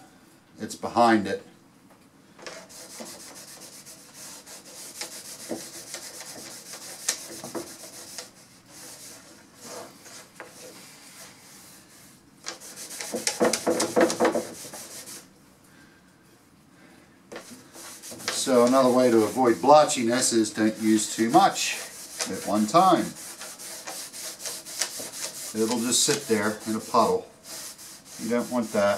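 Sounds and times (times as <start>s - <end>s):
rag rubbing on wood: 2.5s - 15.3s, 17.3s - 28.9s.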